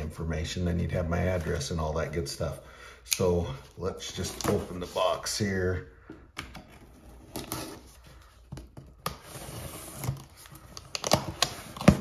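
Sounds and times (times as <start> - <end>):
tape and cardboard tearing: 8.6 - 12.0.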